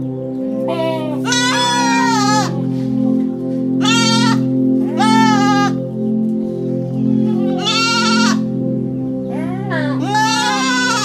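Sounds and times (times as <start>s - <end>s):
background music sustained notes: 0.0s - 11.0s
goats bleating: 0.8s - 2.6s, 3.8s - 5.8s, 7.0s - 8.5s, 10.0s - 11.0s.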